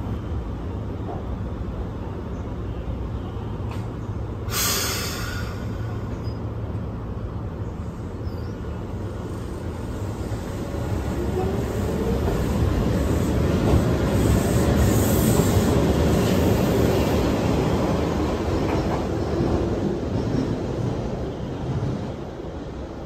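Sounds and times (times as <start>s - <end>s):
compressed air hissing: 4.5s - 6.0s.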